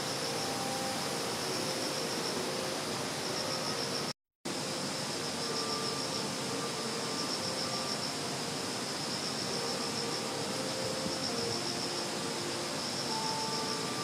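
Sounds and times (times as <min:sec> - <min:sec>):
background hiss: 0:00.0 - 0:14.0
insects chirring: 0:00.0 - 0:14.0.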